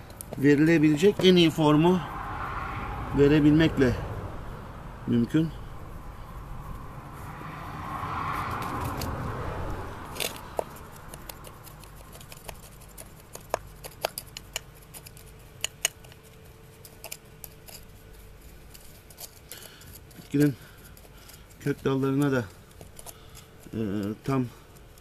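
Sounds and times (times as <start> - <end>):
soft rushing noise: 0.4 - 11.1
screwdriver scraping in gritty soil: 10.1 - 25.0.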